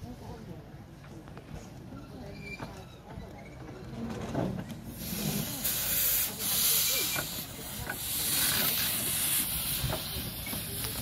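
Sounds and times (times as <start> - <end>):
steam locomotive hissing steam: 4.8 - 11.0.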